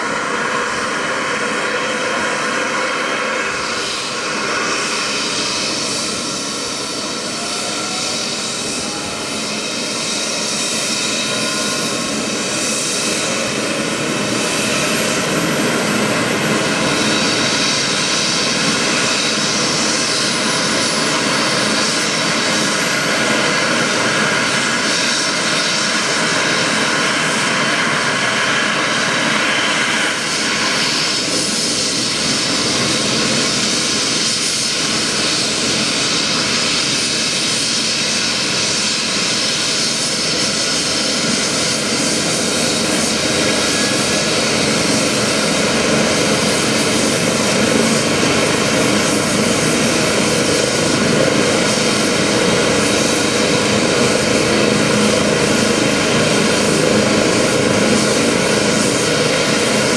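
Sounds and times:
helicopter turbine whine and rotor: 0.0s - 59.9s.

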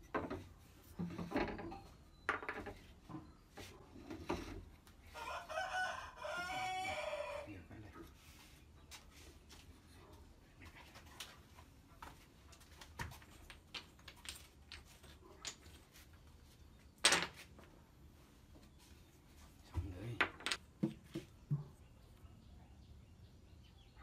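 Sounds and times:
wooden pieces clattering: 13.2s - 16.0s, 16.9s - 17.6s, 20.2s - 20.8s
wooden parts tapping on bench: 19.8s - 21.7s.

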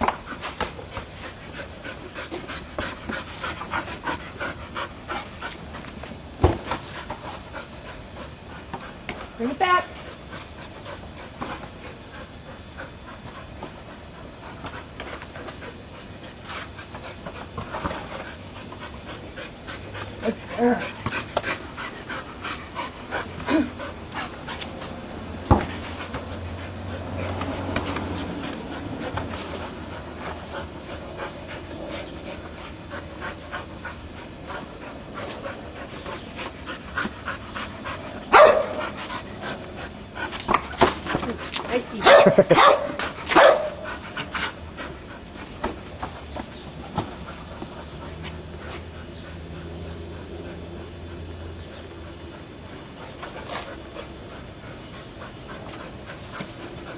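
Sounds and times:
ball bumping on concrete: 0.0s - 1.4s, 4.9s - 11.8s, 16.4s - 34.0s, 38.4s - 44.2s, 45.2s - 48.9s
dog panting hard: 0.0s - 56.9s.

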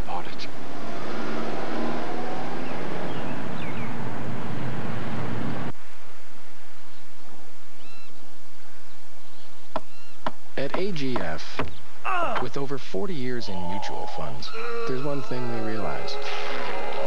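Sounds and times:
faint bird chirps: 7.8s - 8.2s, 8.9s - 10.3s
seaside ambience: 12.5s - 17.0s.

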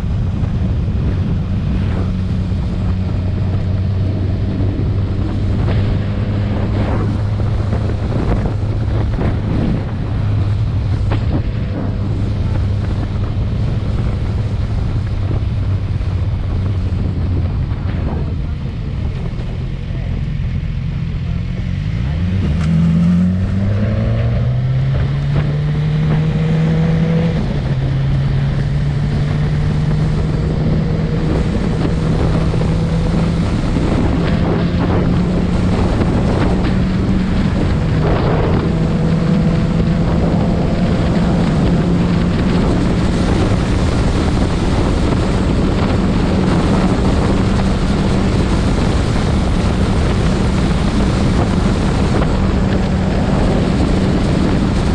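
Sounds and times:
motorcycle engine accelerating: 0.0s - 54.9s
wind on microphone: 0.0s - 54.9s.

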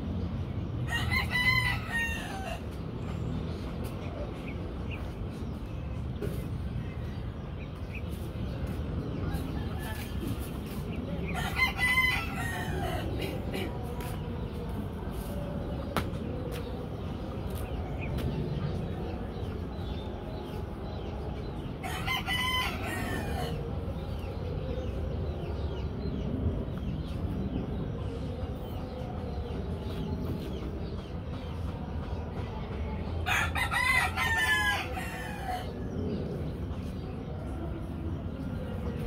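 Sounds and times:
rooster crowing: 0.9s - 2.6s.

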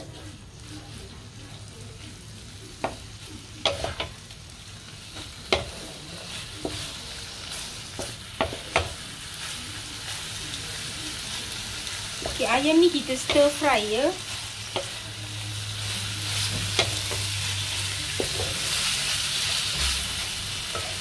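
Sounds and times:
chicken sizzling in a pan: 0.0s - 21.0s
spatula knocking and scraping pan: 3.6s - 4.2s, 5.2s - 6.0s, 8.0s - 9.0s, 18.2s - 18.7s.

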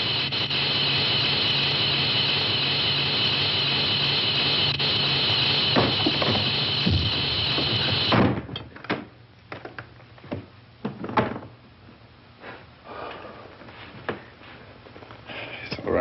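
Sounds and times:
loud steady noise: 0.0s - 8.2s
wooden door slamming: 8.1s - 8.6s.

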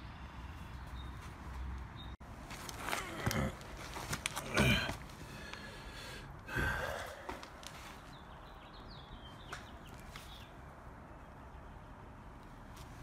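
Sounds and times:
heavy breath out through nose: 4.5s - 7.4s.

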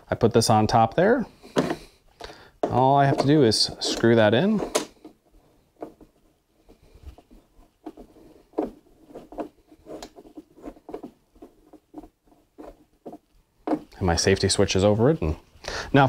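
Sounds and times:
screwdriver ticks and scrapes: 9.2s - 11.0s.

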